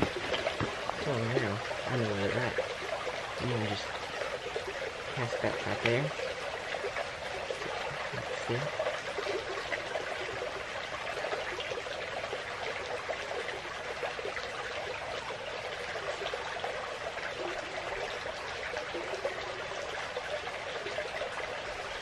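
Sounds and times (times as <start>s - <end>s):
creek water babbling: 0.0s - 22.0s.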